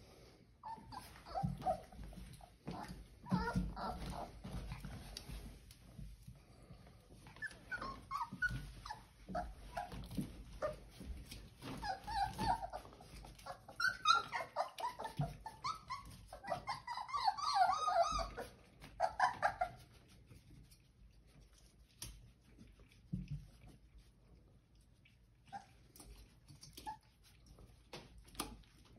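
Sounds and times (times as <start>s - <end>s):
puppies whimpering and yipping: 0.6s - 5.4s, 7.2s - 20.1s, 25.5s - 27.2s
light clicks and scuffles: 1.0s - 13.6s.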